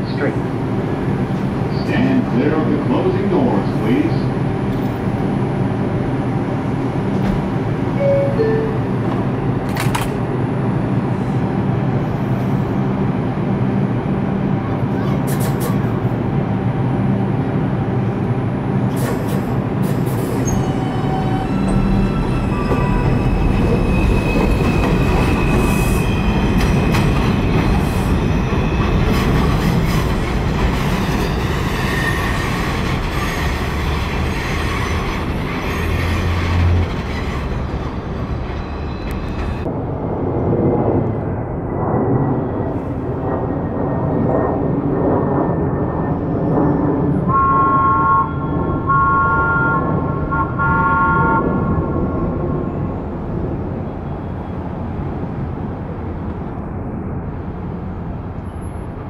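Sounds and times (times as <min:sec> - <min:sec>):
subway train rumbling on track: 0:00.0 - 0:59.0
high wheel squeal: 0:20.3 - 0:26.9, 0:31.2 - 0:37.7.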